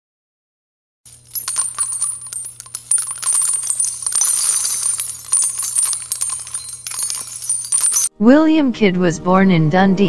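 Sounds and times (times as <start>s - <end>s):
tiny metallic chinks: 1.1s - 8.1s.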